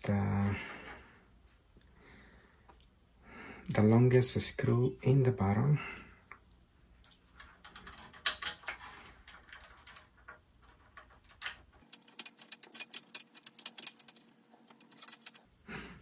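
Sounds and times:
metal parts clicking and tapping: 7.0s - 15.6s.

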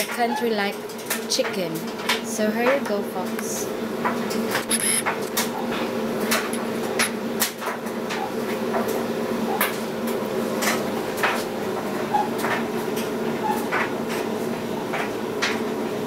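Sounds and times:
steady low hum: 2.0s - 12.1s.

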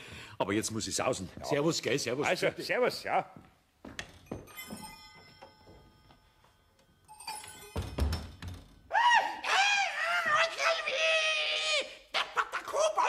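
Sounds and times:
faint ringing: 4.0s - 8.9s.

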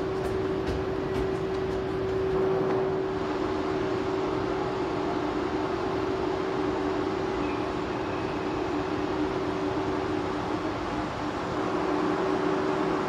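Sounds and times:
train mechanical hum: 0.0s - 13.0s.

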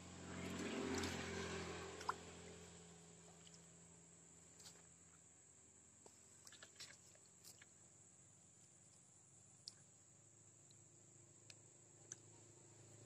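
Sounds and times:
tiny ticks: 9.6s - 9.9s, 11.4s - 12.3s.

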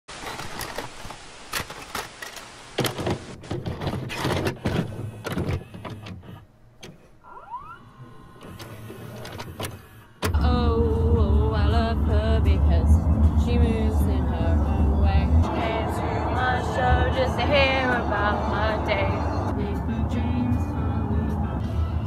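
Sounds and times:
tape hiss: 0.1s - 3.4s
plastic clicks and clunks: 0.2s - 7.2s, 8.4s - 10.4s
motor whir and mechanical hum: 4.4s - 10.5s.

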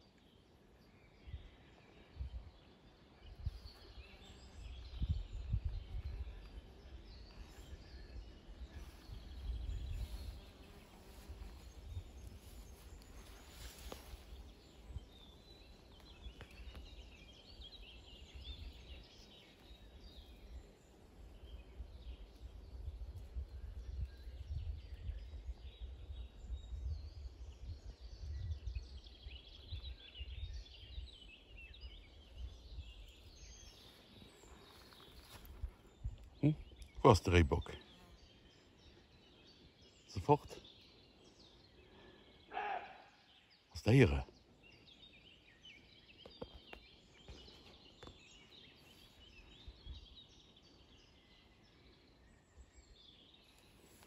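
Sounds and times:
songbirds chirping: 0.0s - 54.0s
wind buffeting microphone: 4.5s - 7.3s, 8.0s - 10.5s, 21.8s - 33.6s.

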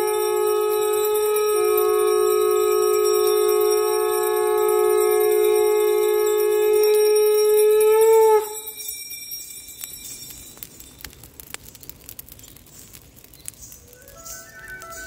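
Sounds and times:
conch shell blown: 0.0s - 8.7s
bonfire crackling: 0.0s - 15.0s.

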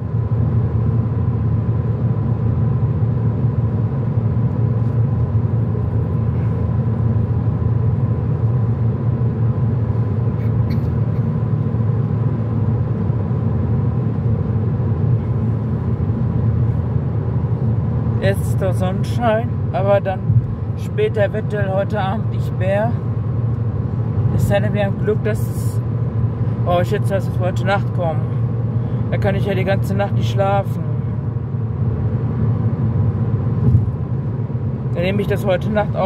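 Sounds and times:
road and engine rumble in car: 0.0s - 36.0s.

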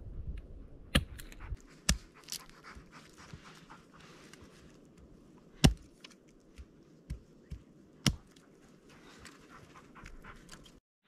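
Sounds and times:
dog panting: 1.3s - 4.6s, 8.6s - 10.8s.

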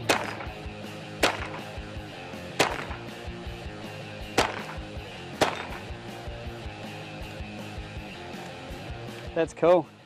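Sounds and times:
rifle shots: 0.0s - 1.9s, 2.5s - 3.3s, 4.3s - 6.0s.

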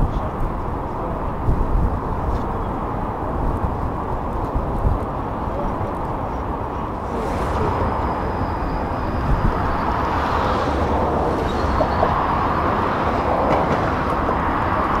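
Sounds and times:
wind buffeting microphone: 0.0s - 15.0s
distant jet aircraft roar: 6.1s - 15.0s.

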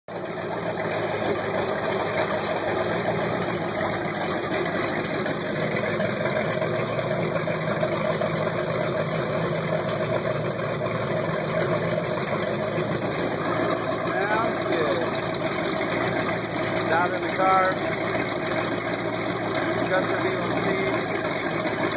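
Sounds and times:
boat engines idling: 0.1s - 21.9s.

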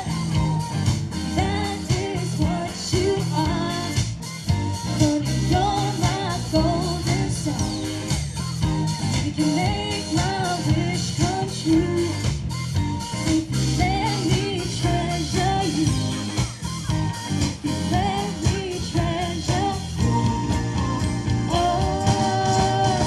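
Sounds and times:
lead vocalist singing: 0.0s - 12.4s, 17.5s - 23.0s
drum kit beating: 0.0s - 23.0s
electric guitars: 0.0s - 23.0s.

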